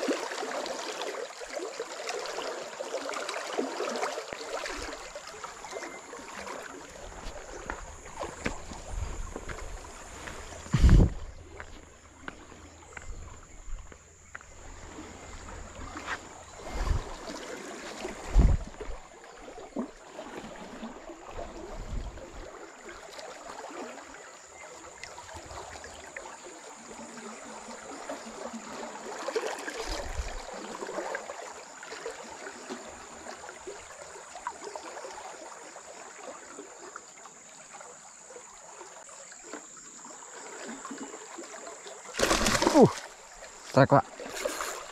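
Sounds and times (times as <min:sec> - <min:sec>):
river water rushing: 0:00.0 - 0:12.7, 0:40.2 - 0:44.9
dull low thumps: 0:08.4 - 0:11.7.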